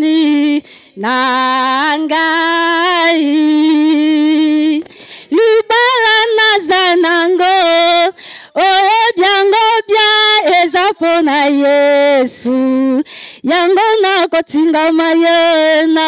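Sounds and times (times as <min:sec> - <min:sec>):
woman singing with vibrato: 0:00.0 - 0:16.0
singer breaths: 0:00.6 - 0:01.0, 0:04.8 - 0:05.4, 0:08.1 - 0:08.6, 0:13.0 - 0:13.5.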